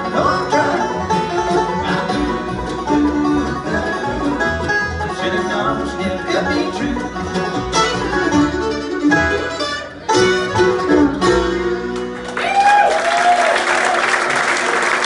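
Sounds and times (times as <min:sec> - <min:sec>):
bluegrass band playing: 0:00.0 - 0:12.8
audience applause and cheering: 0:12.0 - 0:15.0.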